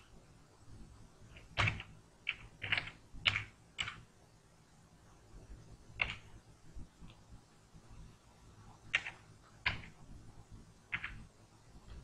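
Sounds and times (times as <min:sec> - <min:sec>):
computer keyboard typing: 0:01.3 - 0:04.1, 0:06.0 - 0:06.3, 0:08.9 - 0:10.0, 0:10.9 - 0:11.3.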